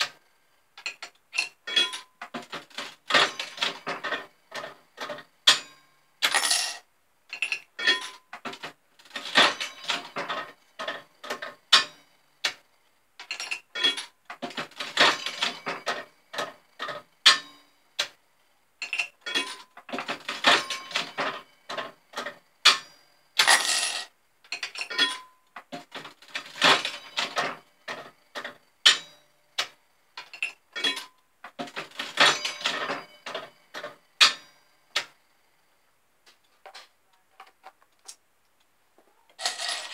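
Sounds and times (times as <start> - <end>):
coins clattering: 6.2 - 11.5, 23.4 - 25.3, 39.4 - 39.9.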